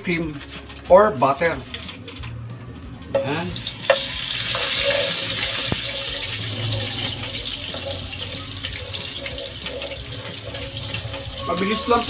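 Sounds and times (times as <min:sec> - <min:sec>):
butter sizzling in frying pan: 0:03.2 - 0:12.0.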